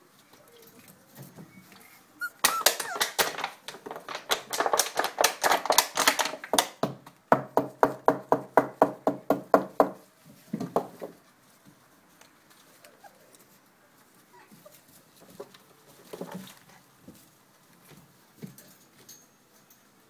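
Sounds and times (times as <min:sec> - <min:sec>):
plastic bottle crackling: 0:02.4 - 0:06.8.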